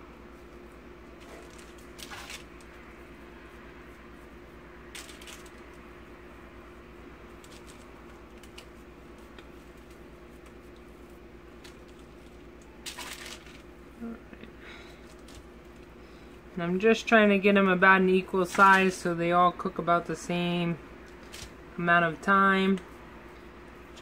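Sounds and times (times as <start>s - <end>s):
soft handling of dough: 0.0s - 24.0s
steady low hum: 0.0s - 24.0s
parchment paper rustling: 1.1s - 5.9s, 6.7s - 14.0s, 14.6s - 16.4s, 18.3s - 19.2s, 21.0s - 21.8s.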